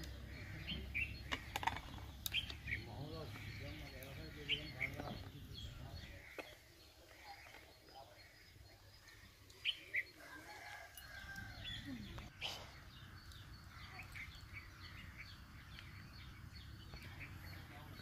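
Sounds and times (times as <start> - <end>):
rooster crowing: 10.1 - 11.9.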